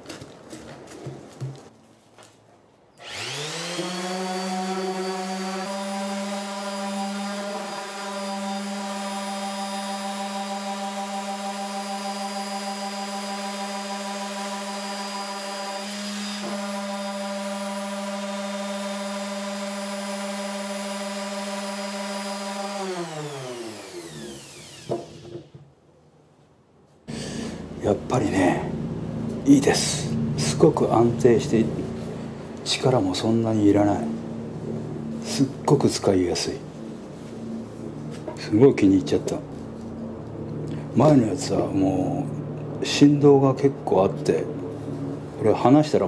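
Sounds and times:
orbital sander running on wood: 0:03.0 - 0:25.4
sander winding down: 0:03.0 - 0:25.5.

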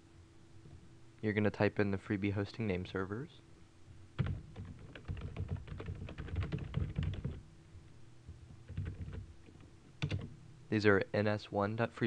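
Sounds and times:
computer keyboard typing: 0:04.2 - 0:07.4, 0:08.7 - 0:10.3.

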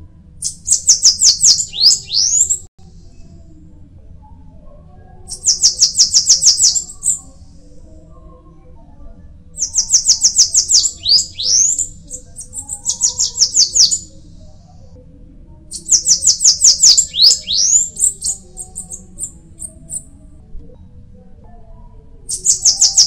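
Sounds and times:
bird singing high thin notes: 0:00.4 - 0:02.6, 0:09.6 - 0:14.1, 0:15.8 - 0:19.0.

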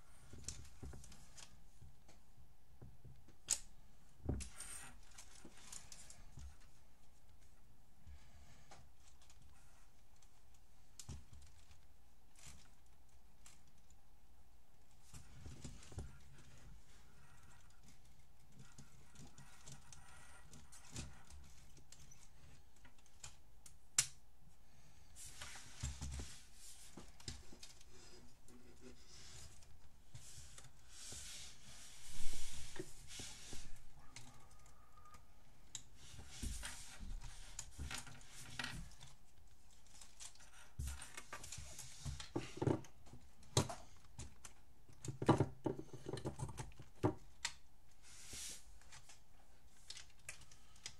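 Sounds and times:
rustling and scraping on table: 0:25.2 - 0:34.9, 0:35.9 - 0:39.1, 0:40.0 - 0:43.0, 0:48.0 - 0:49.2
plastic parts clicking and rattling: 0:37.2 - 0:47.6.

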